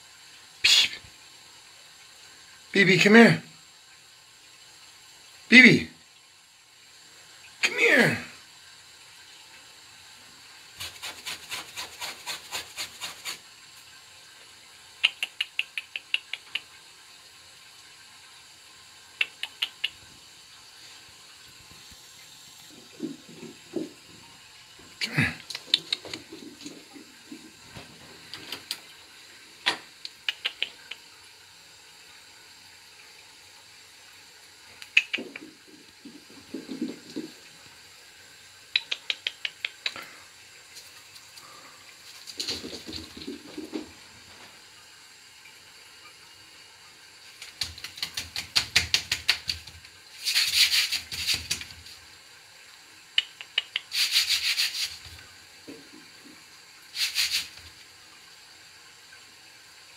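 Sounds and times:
person hissing pspsps: 0.6s - 1.1s, 25.0s - 26.0s, 38.8s - 40.3s, 50.2s - 51.5s, 53.2s - 55.1s, 56.9s - 57.6s
person clicking mouth: 15.0s - 16.7s, 19.2s - 20.0s, 25.0s - 26.3s, 29.6s - 31.1s, 34.8s - 35.5s, 38.7s - 40.2s, 53.2s - 54.0s.

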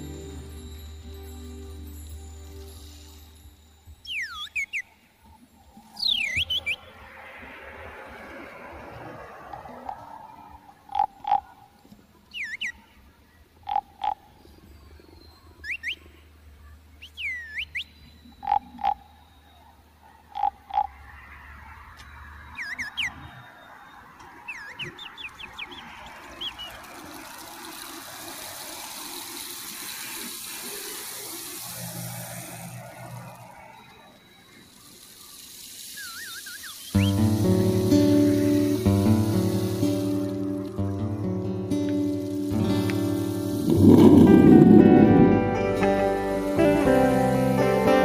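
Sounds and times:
descending bird chirps: 0.0s - 8.7s, 12.3s - 19.8s, 20.4s - 26.9s, 32.4s - 41.6s
steady hiss: 0.0s - 10.0s, 25.6s - 48.0s
frogs croaking: 4.0s - 12.6s, 13.4s - 14.9s, 17.1s - 40.8s, 41.8s - 45.6s.

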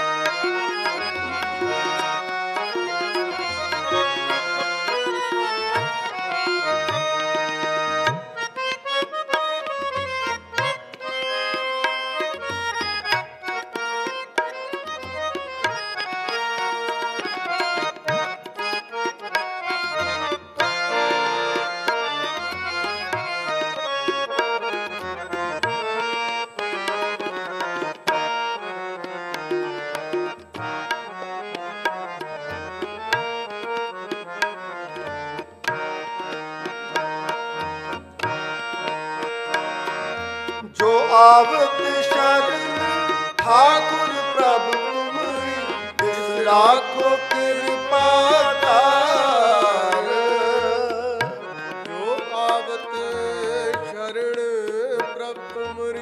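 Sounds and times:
harmonium chords: 0.0s - 56.0s
tabla rhythm: 0.0s - 56.0s
man singing gliding notes: 40.8s - 56.0s.

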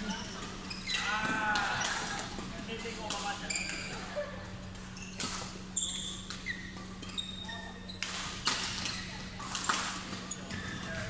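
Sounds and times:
shoes squeaking on floor: 0.0s - 1.1s, 3.3s - 9.3s.

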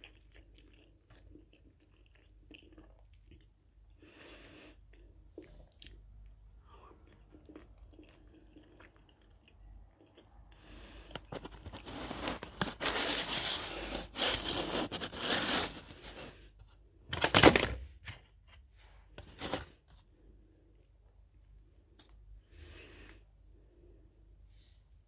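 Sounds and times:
food packaging crinkling: 11.1s - 16.4s, 19.2s - 19.8s.

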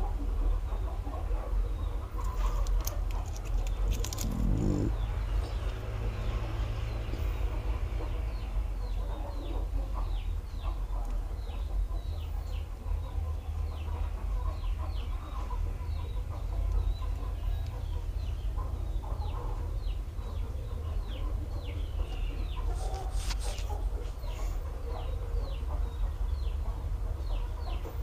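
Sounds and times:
bird chirping: 3.5s - 7.4s
steady low hum: 3.7s - 8.9s.

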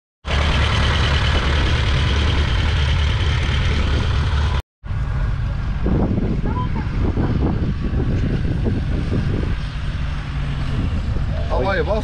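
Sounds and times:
tractor diesel engine running: 0.2s - 5.8s.

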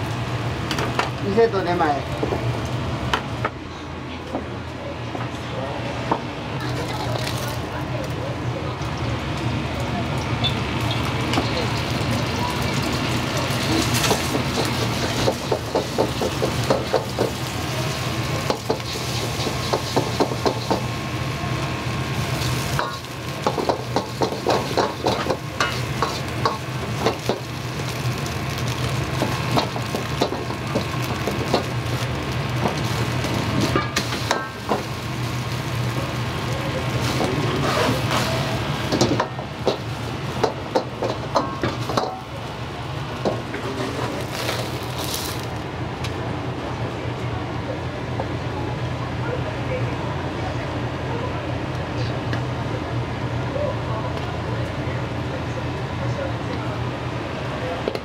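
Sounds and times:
food sizzling in a wok: 8.8s - 45.6s.

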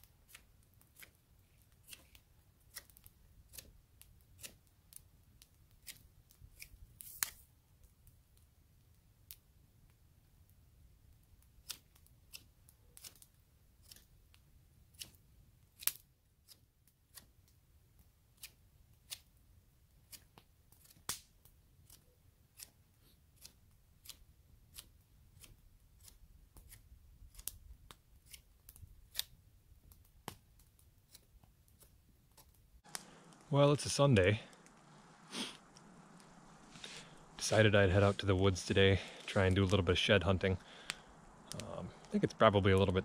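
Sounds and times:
wood fire crackling and popping: 0.0s - 43.0s
faint low rumble: 32.9s - 43.0s.

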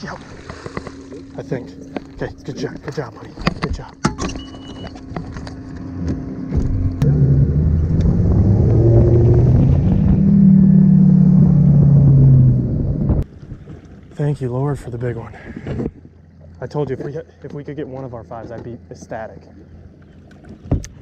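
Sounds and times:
outboard engine revving: 5.0s - 15.9s.

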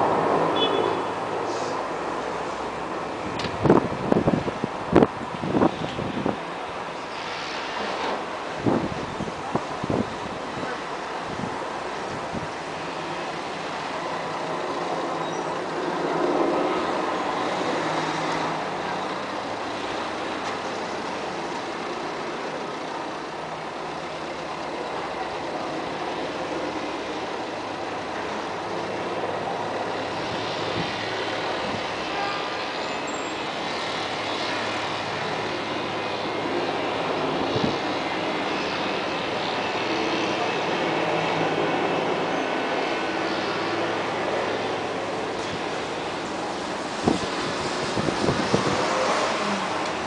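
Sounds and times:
distant aircraft engine droning: 0.0s - 50.0s
wind noise on microphone: 2.8s - 13.8s, 30.0s - 32.4s, 34.6s - 50.0s.

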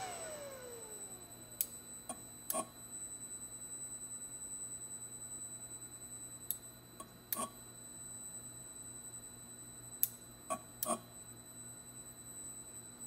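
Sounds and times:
electric motor whine: 0.0s - 1.6s.

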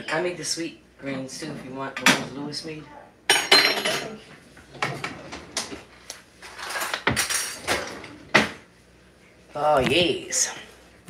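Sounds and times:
dishes and utensils clattering: 3.3s - 5.8s, 6.4s - 8.6s.

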